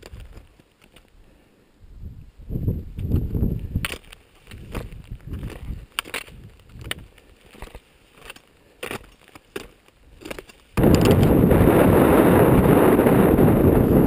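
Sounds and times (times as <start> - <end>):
footsteps crunching on scree: 0.0 - 1.2, 2.9 - 11.4
wind buffeting microphone: 1.9 - 3.9, 4.5 - 7.1, 10.8 - 14.0.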